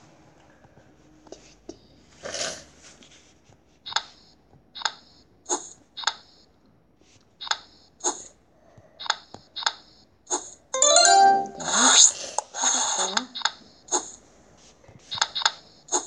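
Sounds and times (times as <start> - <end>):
bright game clicks: 10.8 - 11.7.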